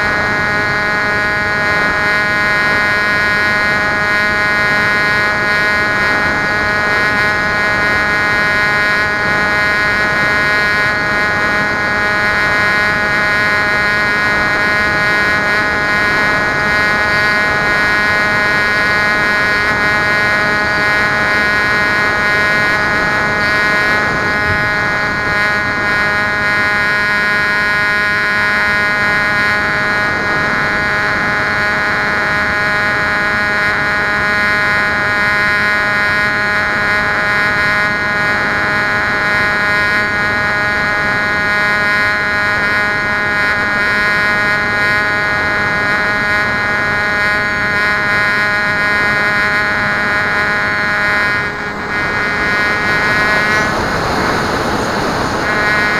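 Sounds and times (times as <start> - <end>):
electric motor high-pitched whine: 0.0 - 55.9
rushing air noise: 51.1 - 55.9.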